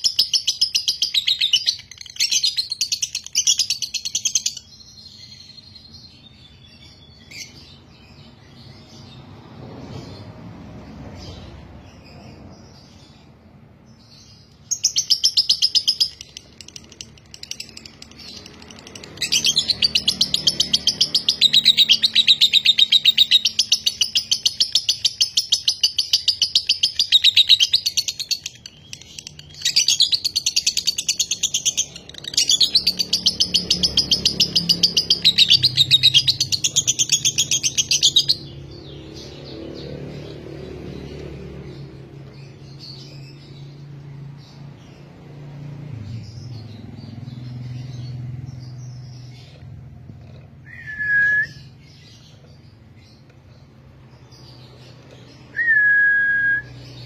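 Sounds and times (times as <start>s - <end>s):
lovebird chattering in rapid chirps: 0.0s - 9.1s, 14.1s - 39.6s.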